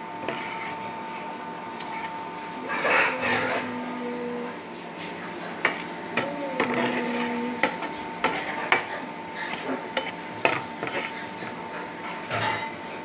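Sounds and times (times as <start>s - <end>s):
metal spoon scraping steel pan: 0.2s - 0.8s, 5.6s - 8.9s, 9.5s - 11.6s.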